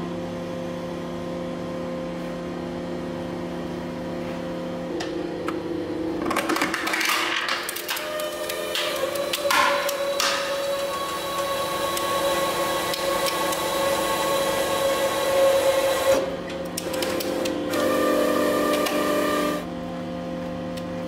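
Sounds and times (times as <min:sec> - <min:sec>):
hydraulic press motor running: 0:04.9 - 0:19.7.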